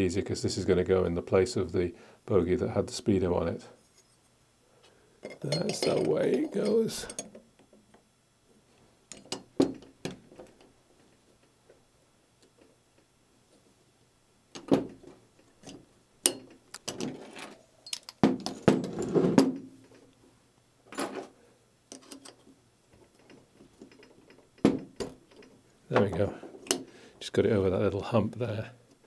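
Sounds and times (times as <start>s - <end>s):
metal parts clinking: 5.2s - 7.4s, 15.6s - 18.6s.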